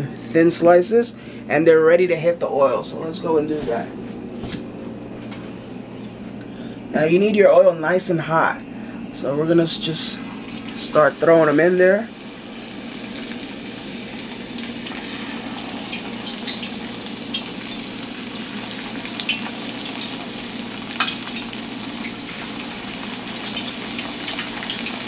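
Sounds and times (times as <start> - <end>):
plantain frying in hot oil: 10.4 - 25.0
oil crackling and popping: 14.2 - 25.0.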